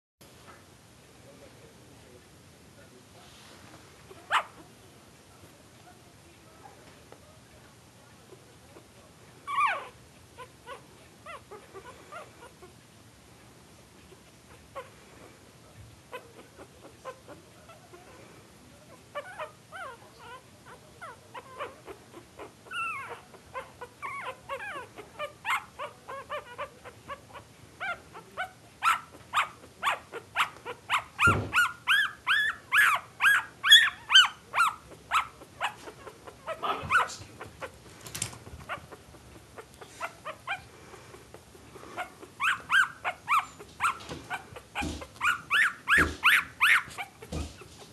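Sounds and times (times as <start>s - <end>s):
puppies whimpering and squeaking: 9.5s - 12.7s, 19.1s - 47.9s.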